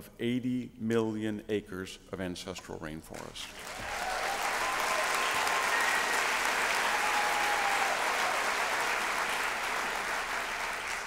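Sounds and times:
audience applause: 3.5s - 11.0s.

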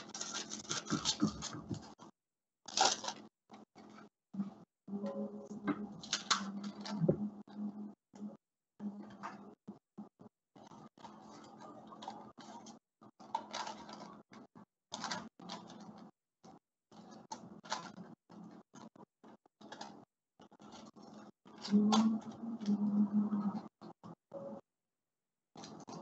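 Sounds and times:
paper rustling: 0.0s - 2.1s, 2.7s - 4.0s, 10.6s - 16.1s.

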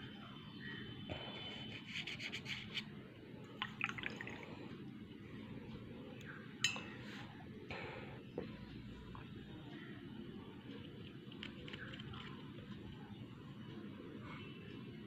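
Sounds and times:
paintbrush clinking against dish: 6.6s - 7.0s.

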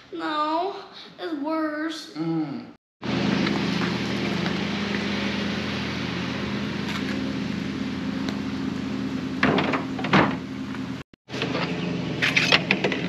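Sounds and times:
low mechanical hum: 3.0s - 13.0s.

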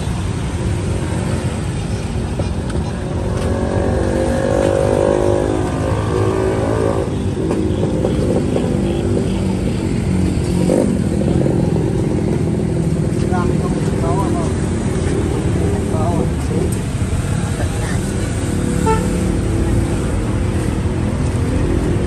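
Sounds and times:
motorbike engines running: 0.0s - 22.0s.

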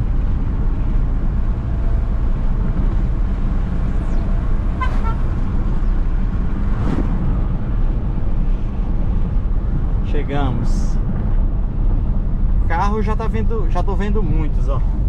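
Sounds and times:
vehicle engine and road rumble: 0.0s - 15.0s
high-pitched horn toot: 4.8s - 5.3s.

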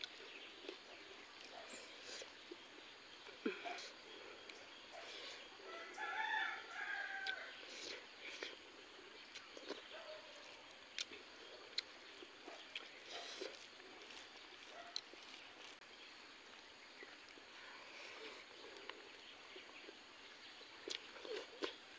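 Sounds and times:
chewing sounds: 0.0s - 5.5s, 7.0s - 15.8s, 17.0s - 21.9s
rooster crowing: 5.6s - 7.6s.

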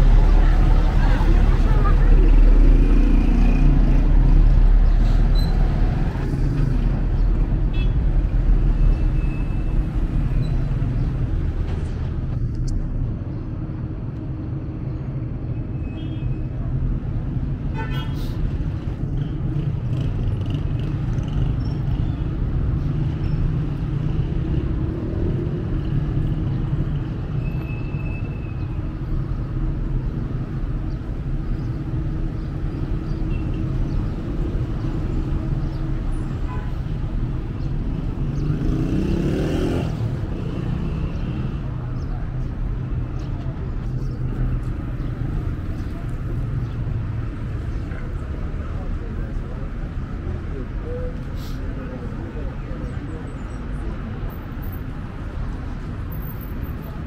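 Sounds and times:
traffic rumble: 0.0s - 57.0s.

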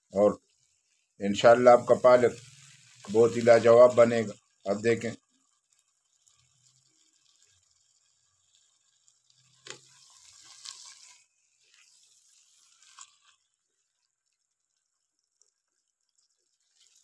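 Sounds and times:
wet hissing and squelching: 0.0s - 5.1s, 9.6s - 13.4s
spatula stirring wet vegetables: 0.0s - 17.0s.

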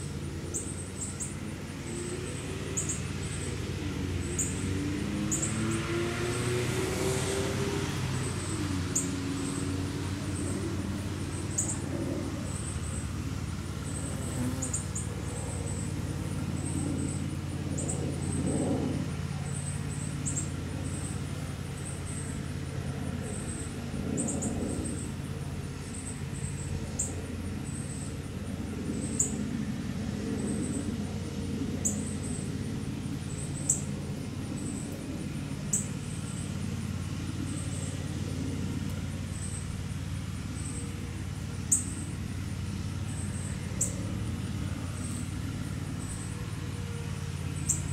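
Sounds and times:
low mechanical hum: 0.0s - 47.9s.

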